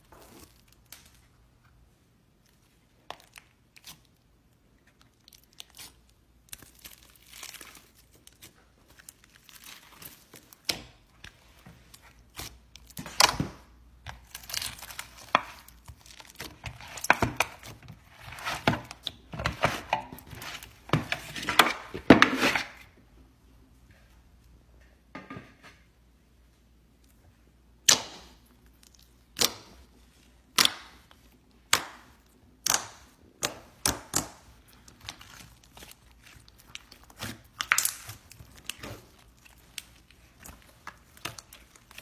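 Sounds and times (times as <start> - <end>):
slime tearing: 4.8 - 13.5, 30.5 - 42.0
slime crackling and popping: 30.5 - 42.0.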